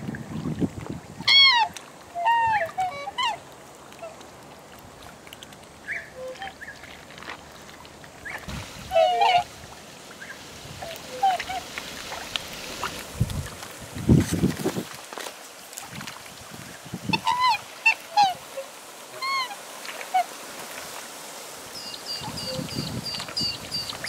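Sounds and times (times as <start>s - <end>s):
swans honking: 1.2s - 3.4s, 5.8s - 6.8s, 8.2s - 12.4s, 17.1s - 20.5s, 21.8s - 24.0s.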